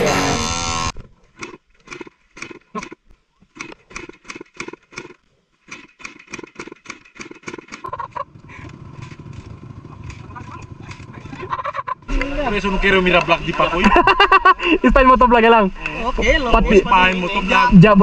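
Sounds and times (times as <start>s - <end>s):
guitar music: 0.0s - 0.9s
dirt bike engine revving: 0.0s - 1.6s, 7.5s - 12.8s.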